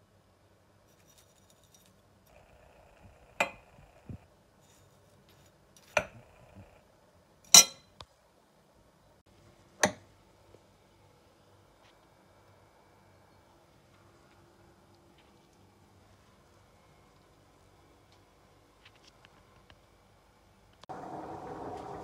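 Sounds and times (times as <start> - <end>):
glass bowls clinking: 3.4 - 4.2, 5.8 - 6.6.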